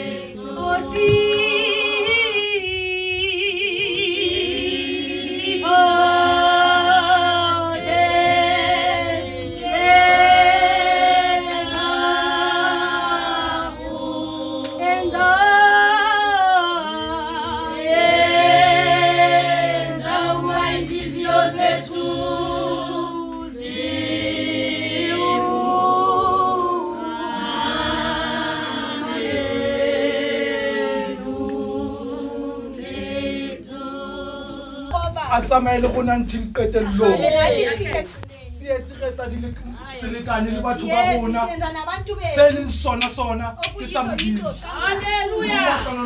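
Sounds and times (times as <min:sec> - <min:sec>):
congregation singing a hymn: 0:00.0 - 0:38.2, 0:39.8 - 0:41.8, 0:43.0 - 0:46.0.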